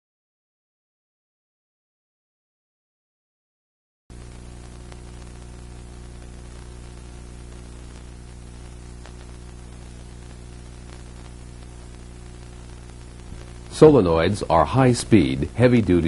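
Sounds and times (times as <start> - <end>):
low electrical hum: 4.1 - 16.0
tape hiss: 4.1 - 16.0
faint ticks: 4.6 - 13.7.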